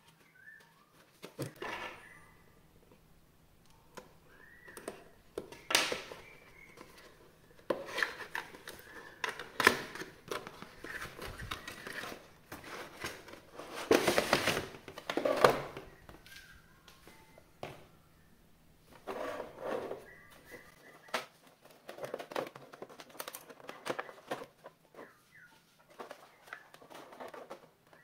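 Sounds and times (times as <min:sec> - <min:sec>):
packaging rustling: 0:03.8 - 0:17.2.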